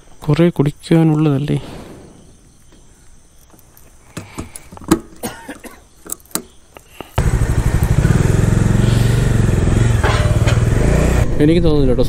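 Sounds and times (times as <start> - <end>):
motorcycle engine running: 7.2 - 11.9.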